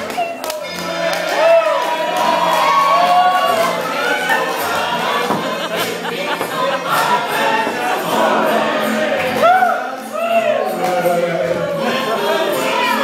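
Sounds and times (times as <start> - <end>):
crowd singing along: 0.0 - 13.0
loud music: 0.0 - 13.0.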